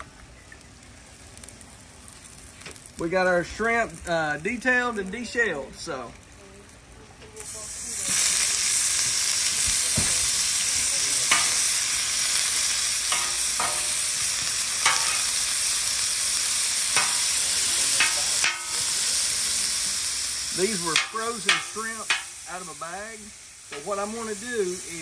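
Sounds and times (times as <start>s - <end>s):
shrimp sizzling on griddle: 0.0s - 25.0s
metal spatula scraping steel: 13.1s - 14.0s.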